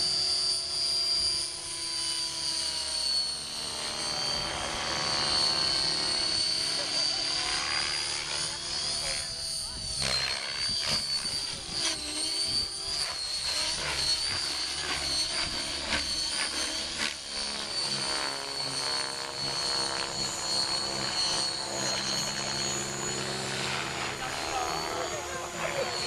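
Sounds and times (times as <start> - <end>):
helicopter rotor whine: 0.0 - 26.0.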